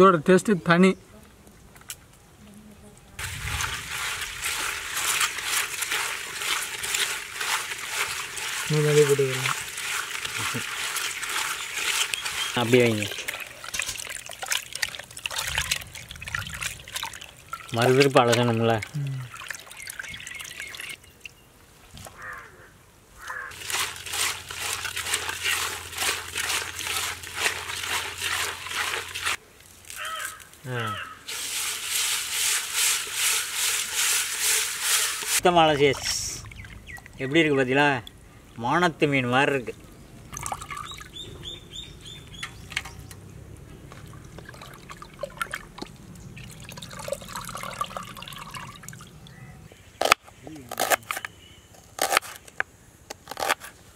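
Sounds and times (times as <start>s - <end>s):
water splashing and trickling: 3.2s - 22.2s, 23.5s - 30.4s, 31.2s - 50.9s
bird chirping: 11.4s - 13.5s, 19.0s - 21.6s, 36.4s - 37.7s, 39.8s - 43.3s, 49.2s - 51.8s
quick rubbing strokes: 31.3s - 35.4s.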